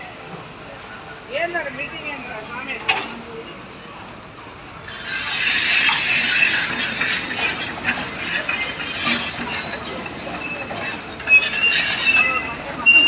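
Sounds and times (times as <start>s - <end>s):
heavy machinery rattling and clanking: 4.8s - 13.0s
high squeal: 4.8s - 13.0s.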